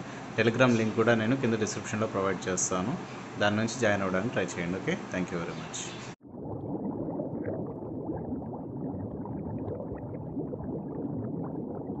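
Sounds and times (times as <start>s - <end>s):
underwater bubbling and gurgling: 6.2s - 12.0s.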